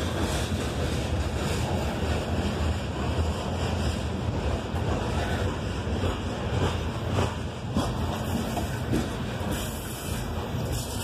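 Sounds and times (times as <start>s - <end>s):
steel wheels roaring on rails: 0.0s - 11.0s
clicks from train trucks: 4.6s - 11.0s.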